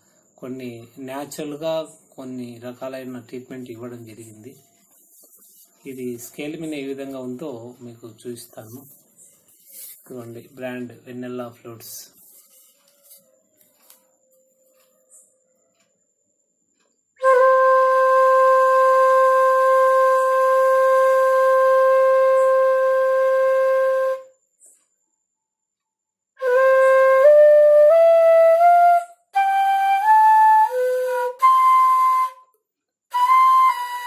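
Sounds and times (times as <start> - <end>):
bamboo flute playing a scale: 17.2 - 24.4, 26.4 - 32.5, 33.1 - 34.0.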